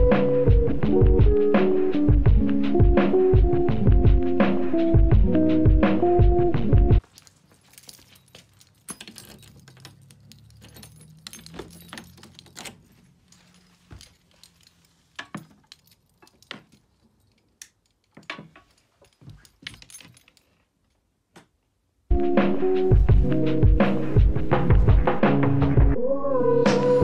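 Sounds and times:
key turning in a lock: 7.0 - 13.0
keys jangling: 7.0 - 20.6
light clicks and knocks of handling: 7.0 - 21.6.

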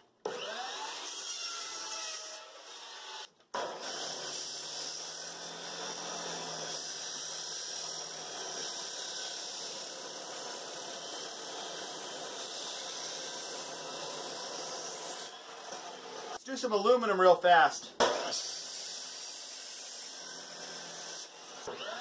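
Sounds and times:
chop saw grinding through wood: 0.3 - 16.4, 18.0 - 22.0.

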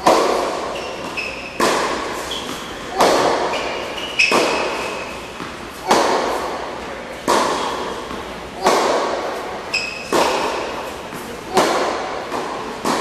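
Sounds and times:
tennis shoe squeaking on court: 0.0 - 6.5, 7.3 - 8.3, 9.4 - 11.2
tennis ball racquet hits: 0.0 - 13.0.

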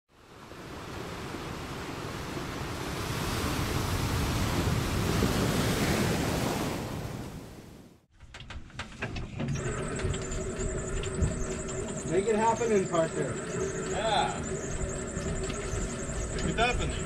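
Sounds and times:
ocean surf rushing: 0.2 - 8.0.

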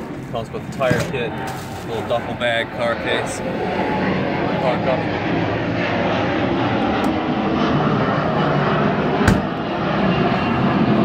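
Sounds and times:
compartment lid closing thud: 9.3 - 9.5.

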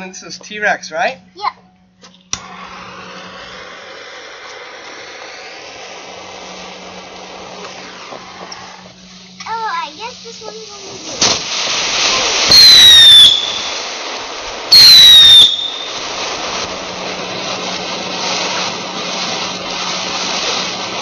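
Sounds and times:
firework spraying sparks hissing: 2.2 - 21.0
shrill firework whistle: 2.4 - 9.1, 12.0 - 14.0, 14.7 - 16.6.

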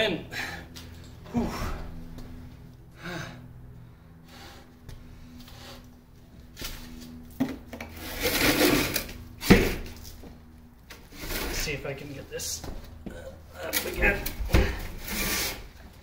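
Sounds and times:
steady low hum: 0.0 - 16.0
scraping and rubbing: 7.9 - 9.3, 11.0 - 11.8, 13.8 - 15.8.

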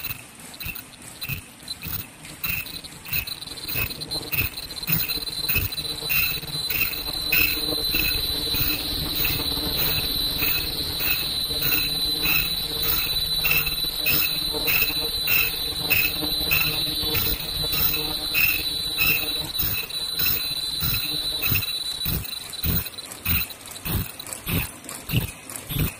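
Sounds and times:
high-pitched machine whine: 0.0 - 25.9
rhythmic machine chirp: 0.0 - 25.9
low mechanical rumble: 2.3 - 25.9.

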